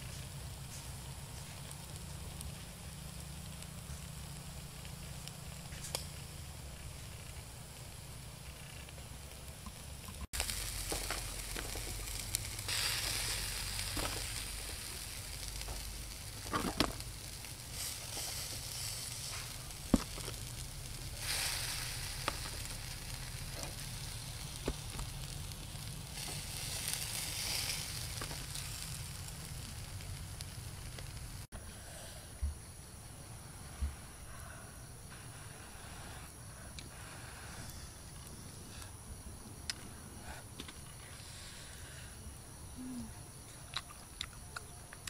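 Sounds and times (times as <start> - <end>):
chicken wings sizzling on grill: 0.0 - 32.6, 34.0 - 43.1
sharp pops: 9.6 - 29.8.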